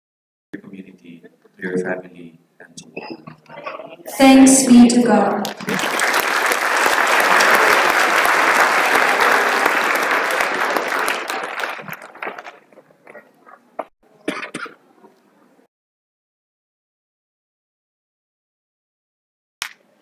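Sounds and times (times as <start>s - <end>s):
crowd applauding: 4.2s - 13.2s.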